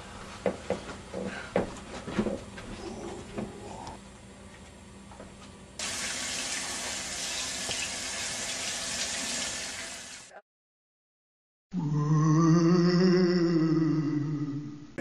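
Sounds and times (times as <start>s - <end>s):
faucet running into sink: 5.8s - 10.3s.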